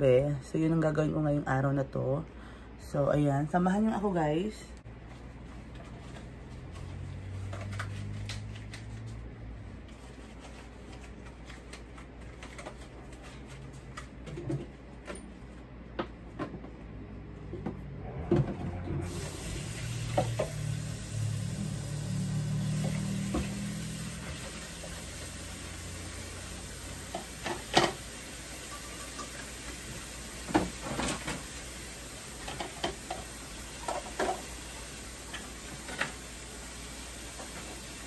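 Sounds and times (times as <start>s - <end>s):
tap water running: 19.1s - 38.0s
dishes clinking in a sink: 28.7s - 29.5s.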